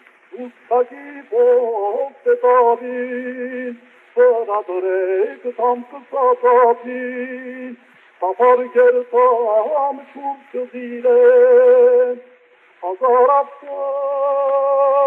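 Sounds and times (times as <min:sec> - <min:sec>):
man singing slow melody: 0:00.2 - 0:15.0.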